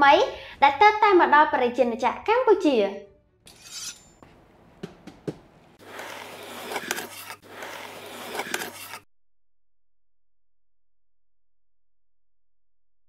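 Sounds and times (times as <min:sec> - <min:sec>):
cardboard scraping and rustling: 0:05.8 - 0:09.0.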